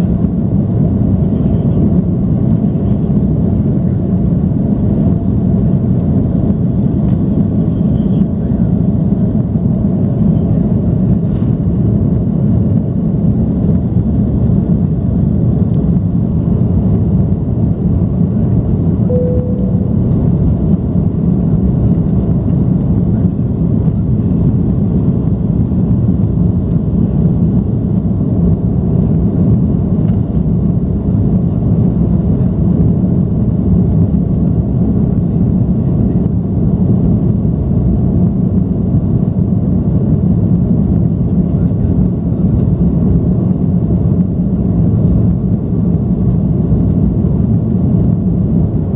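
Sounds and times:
jet engines rumbling: 0.0s - 48.9s
single cabin tone: 19.0s - 20.9s.

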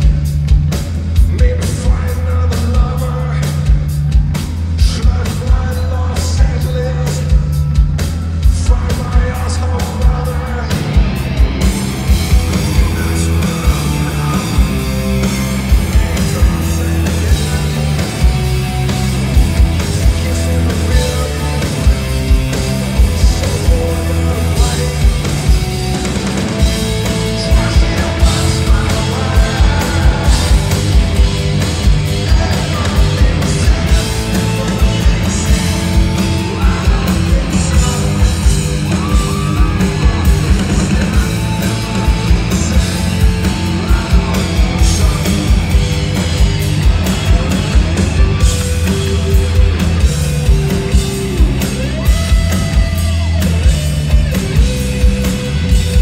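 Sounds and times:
hard rock band playing live: 0.0s - 56.0s
person singing: 12.0s - 18.8s, 19.7s - 25.9s, 26.7s - 46.1s.

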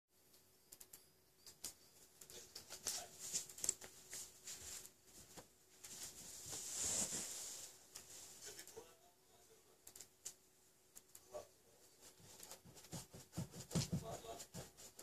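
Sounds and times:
clothing rustling: 2.1s - 8.8s.

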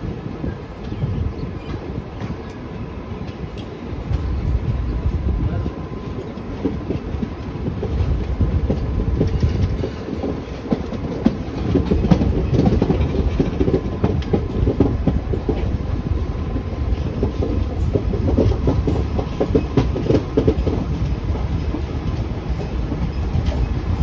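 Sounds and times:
low train rumble: 0.0s - 24.0s
train wheels clacking: 5.6s - 24.0s.

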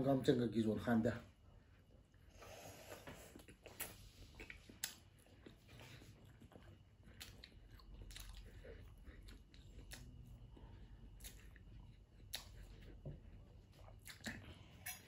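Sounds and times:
close-up chewing: 2.8s - 15.0s
soft mouth clicks: 3.4s - 5.0s.

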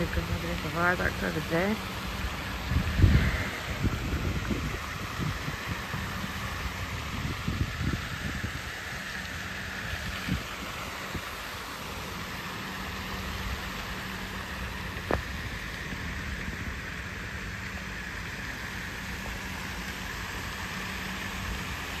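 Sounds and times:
fountain spray splashing: 0.0s - 22.0s
low hum: 0.0s - 22.0s.

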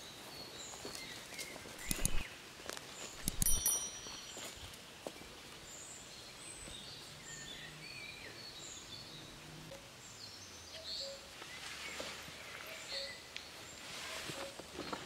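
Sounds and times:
faint outdoor hiss: 0.0s - 15.0s
bird chirps and calls: 0.4s - 2.3s.

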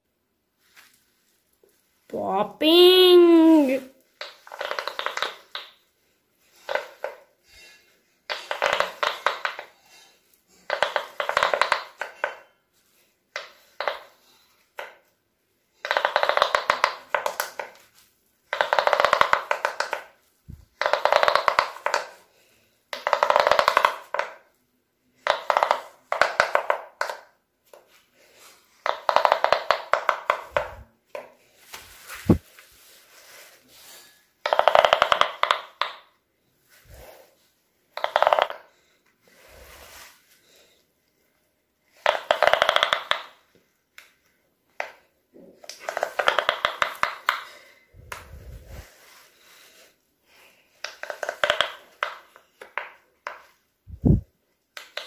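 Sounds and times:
pop-it toy bubbles popping: 4.2s - 5.8s, 18.6s - 22.1s, 34.5s - 36.0s, 42.0s - 43.4s, 45.7s - 47.5s, 50.8s - 54.2s.

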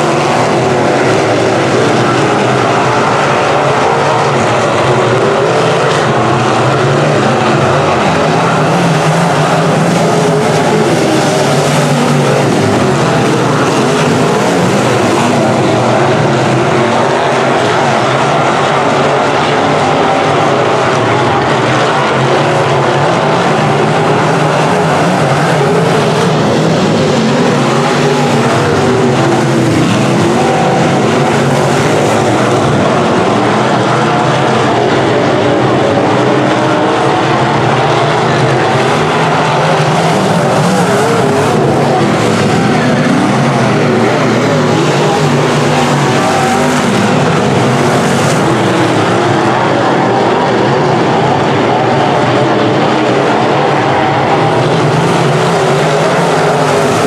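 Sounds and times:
race car engines roaring: 0.0s - 57.0s.

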